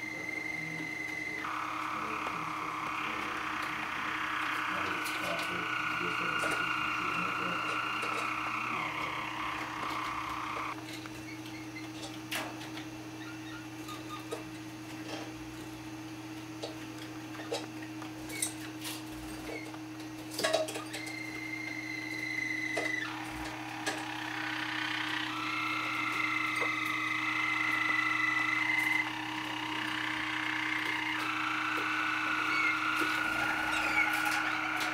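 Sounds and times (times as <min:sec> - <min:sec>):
canary singing: 0:00.0 - 0:10.8, 0:20.8 - 0:34.9
steady low hum: 0:00.0 - 0:10.8, 0:21.2 - 0:34.9
birds pecking on glass and metal: 0:22.8 - 0:34.9.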